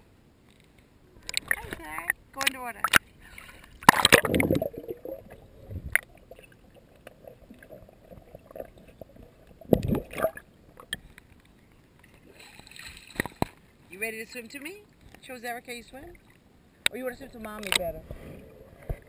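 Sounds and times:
pool water splashing: 0:01.2 - 0:11.0.

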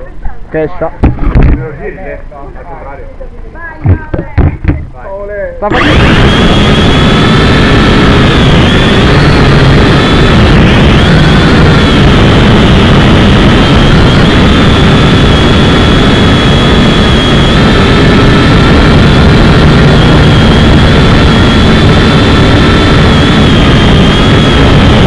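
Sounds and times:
drone motors high whine: 0:00.8 - 0:02.8, 0:03.8 - 0:25.0.

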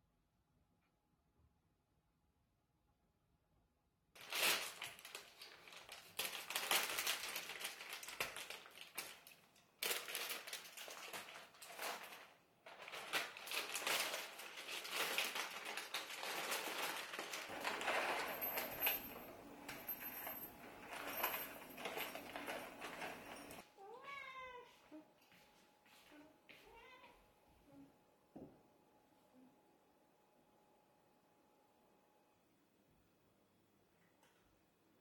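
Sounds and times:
foil bag crinkling: 0:04.2 - 0:19.4.

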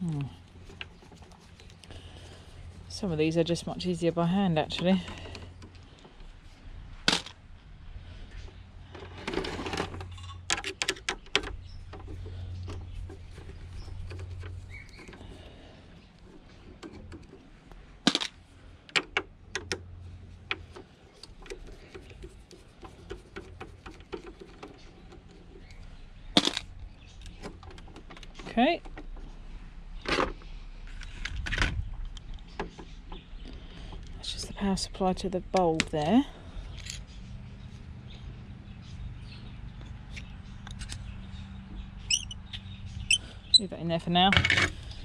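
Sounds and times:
screwdriver turning screws: 0:42.1 - 0:42.4.

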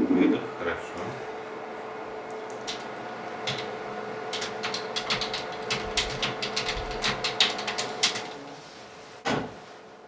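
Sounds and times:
steady low hum: 0:00.0 - 0:10.0
typing on computer keyboard: 0:02.5 - 0:03.7, 0:04.3 - 0:08.4.

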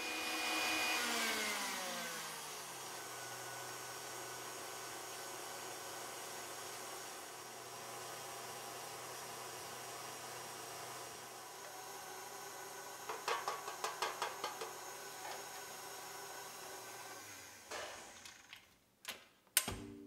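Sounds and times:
knocks: 0:13.1 - 0:14.8.

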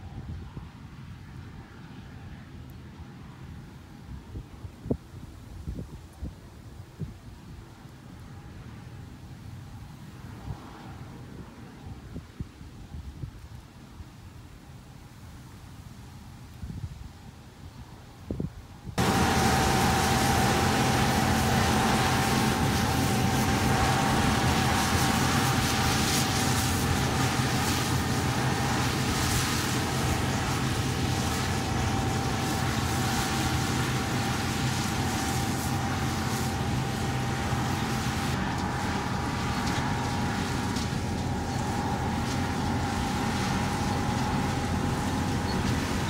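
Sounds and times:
engine drone: 0:19.0 - 0:46.0
threshing machinery whine: 0:19.0 - 0:46.0.

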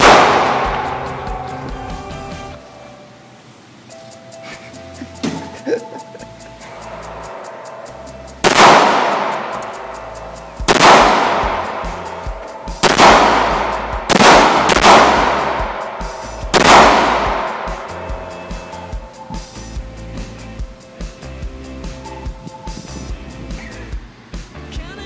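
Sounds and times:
pistol shots echoing indoors: 0:00.0 - 0:01.1, 0:08.4 - 0:09.9, 0:10.7 - 0:18.1.

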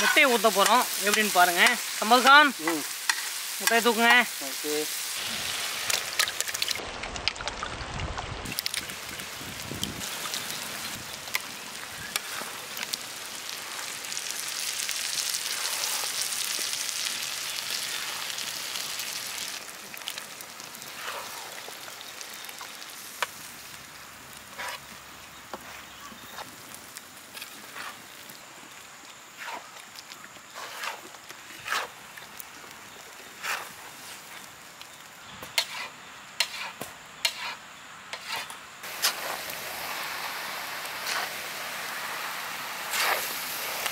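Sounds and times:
eggs frying in hot oil: 0:00.0 - 0:37.6, 0:38.2 - 0:43.9
spatula scraping a pan: 0:24.5 - 0:24.9, 0:29.4 - 0:29.7, 0:30.5 - 0:31.0, 0:31.6 - 0:32.0, 0:33.4 - 0:33.8, 0:35.5 - 0:39.4, 0:42.9 - 0:43.3.

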